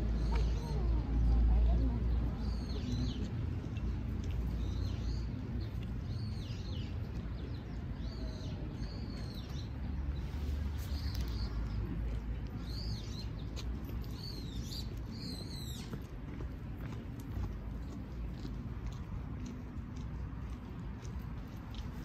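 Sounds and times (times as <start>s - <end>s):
sparrow chirping: 0.0s - 16.2s.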